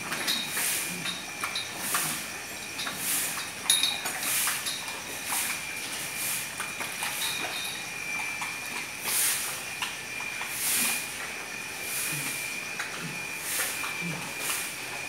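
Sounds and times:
cows drinking: 0:00.0 - 0:15.0
metal chains clinking: 0:00.3 - 0:04.9, 0:07.0 - 0:07.9
pulsing hiss: 0:00.3 - 0:15.0.

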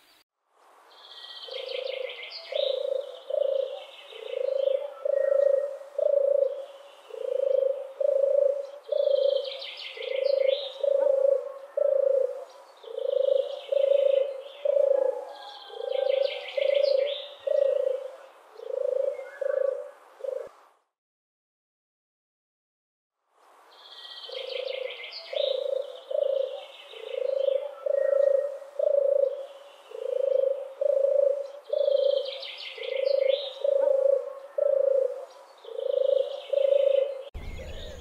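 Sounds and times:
songbird chirping: 0:00.8 - 0:20.6, 0:23.5 - 0:38.0
dove cooing: 0:01.4 - 0:20.6, 0:24.3 - 0:38.0.

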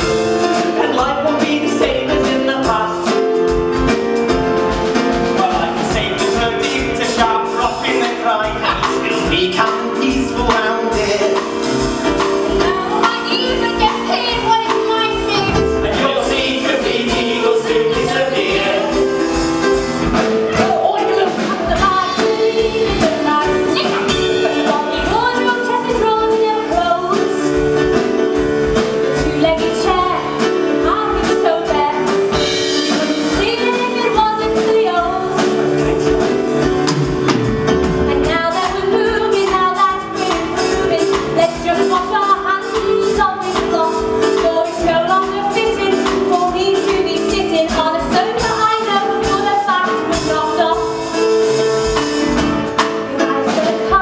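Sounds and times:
instrumental accompaniment with beat: 0:00.0 - 0:54.0
woman singing: 0:12.3 - 0:19.1, 0:20.5 - 0:27.7, 0:29.0 - 0:36.2, 0:38.1 - 0:51.4, 0:52.9 - 0:54.0.

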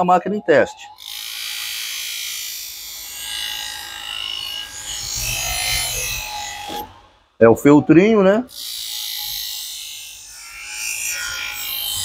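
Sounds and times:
bench grinder motor whine: 0:01.0 - 0:07.4, 0:08.5 - 0:12.0
knife blade rubbing on wheel: 0:03.1 - 0:06.9.

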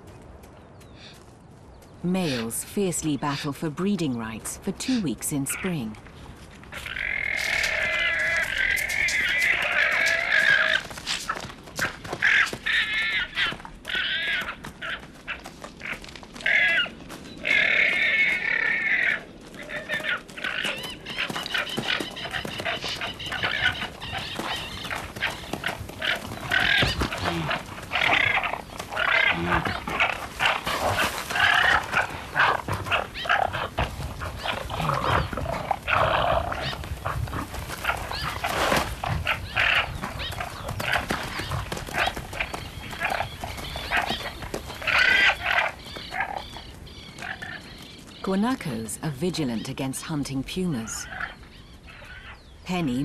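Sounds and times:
animals scuffling: 0:04.3 - 0:48.8
shrill animal calls: 0:12.2 - 0:48.2, 0:50.8 - 0:52.6.

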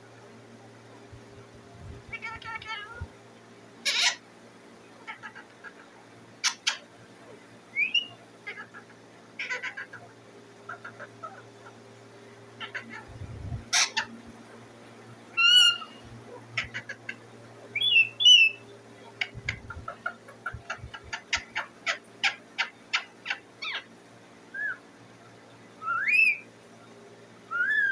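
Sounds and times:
parakeet screeching and squawking: 0:02.1 - 0:03.0, 0:03.8 - 0:04.2, 0:05.0 - 0:05.8, 0:06.4 - 0:06.8, 0:07.8 - 0:10.1, 0:10.7 - 0:11.4, 0:12.6 - 0:14.2, 0:15.4 - 0:17.1, 0:17.8 - 0:18.6, 0:19.2 - 0:23.9.

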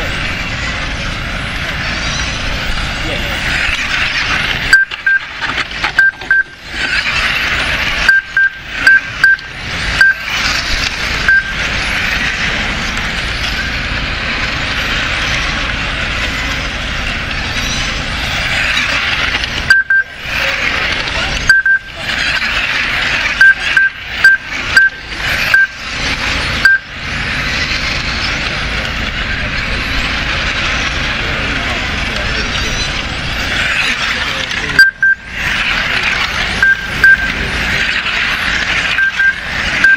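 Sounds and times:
electric rc cars whining: 0:00.0 - 0:39.9
short high beeps: 0:04.7 - 0:05.3, 0:06.0 - 0:06.6, 0:08.0 - 0:10.4, 0:11.2 - 0:11.6, 0:19.7 - 0:20.2, 0:21.5 - 0:21.9, 0:23.4 - 0:25.8, 0:26.6 - 0:26.9, 0:34.8 - 0:35.2, 0:36.6 - 0:37.4, 0:38.9 - 0:39.9.

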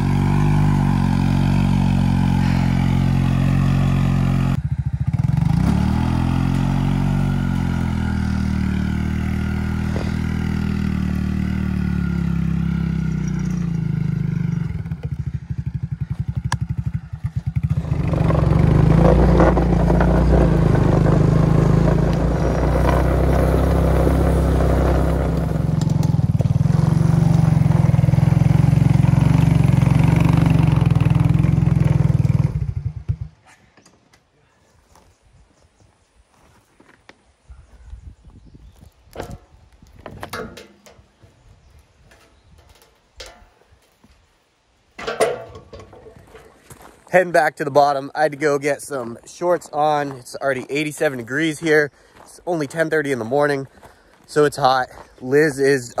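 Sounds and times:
atv engine running under load: 0:00.0 - 0:33.5.

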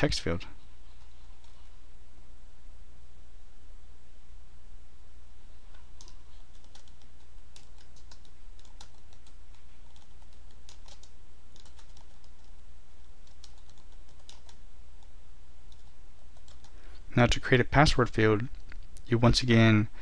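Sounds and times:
keyboard typing: 0:05.7 - 0:15.1, 0:15.7 - 0:16.8.

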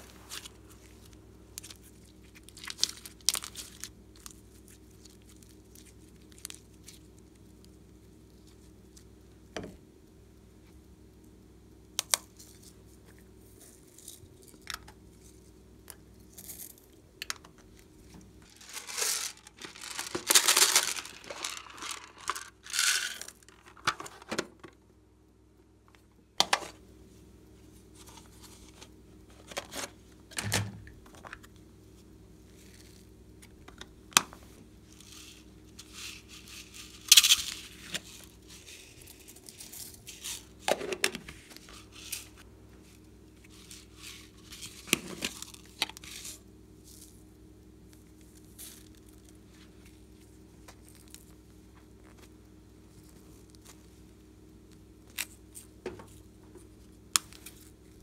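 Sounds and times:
glitter shaken from container: 0:18.4 - 0:23.4
rattling and rustling: 0:18.4 - 0:24.3.

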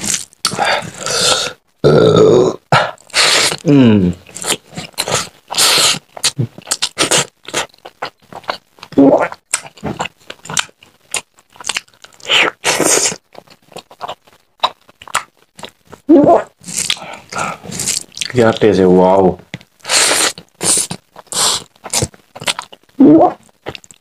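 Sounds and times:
chewing and lip smacking: 0:06.2 - 0:18.4, 0:20.3 - 0:24.0.

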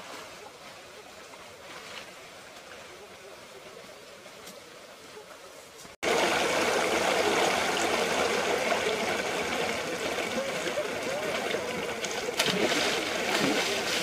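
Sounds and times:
stream water rushing: 0:06.0 - 0:14.0.

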